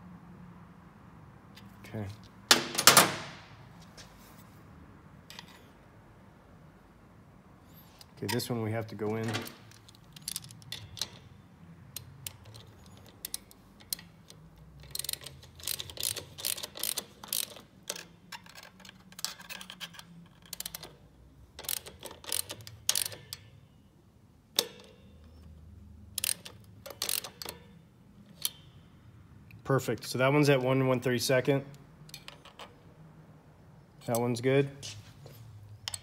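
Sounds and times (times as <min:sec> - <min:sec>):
sharp metal clicks: 0:09.1 - 0:21.0, 0:21.6 - 0:23.6, 0:24.5 - 0:28.8, 0:31.7 - 0:32.8, 0:35.8 - 0:36.0
hand ratchet clicking: 0:11.9 - 0:21.0, 0:21.6 - 0:23.5, 0:26.1 - 0:27.7.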